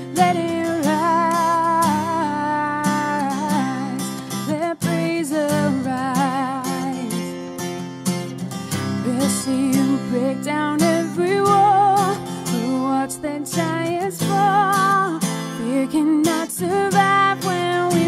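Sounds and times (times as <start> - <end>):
woman singing: 0.0 - 7.6, 8.7 - 18.0
strummed acoustic guitar: 0.0 - 18.0.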